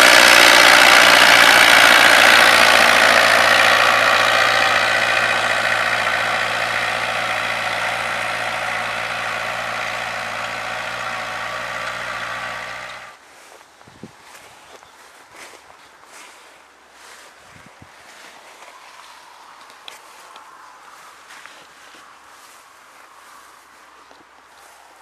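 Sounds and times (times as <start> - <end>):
diesel tractor engine running: 0.0 - 13.2.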